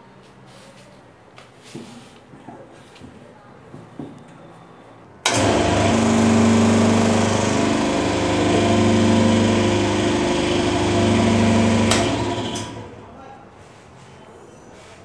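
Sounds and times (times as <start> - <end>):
hydraulic pump motor humming: 5.2 - 13.0.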